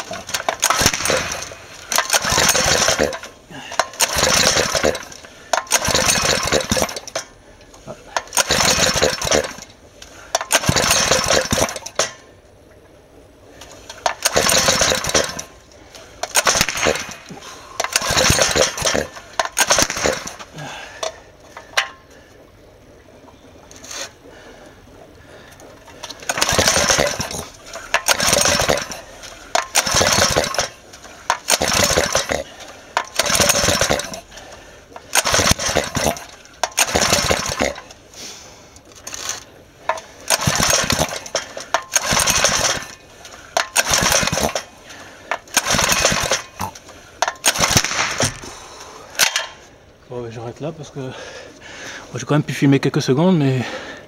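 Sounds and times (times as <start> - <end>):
small engine coughing in bursts: 0.0 - 7.1, 7.8 - 9.7, 10.5 - 11.8, 14.2 - 15.5, 16.2 - 21.0, 26.3 - 30.8, 31.4 - 34.4, 35.1 - 37.9, 40.3 - 43.0, 43.8 - 44.7.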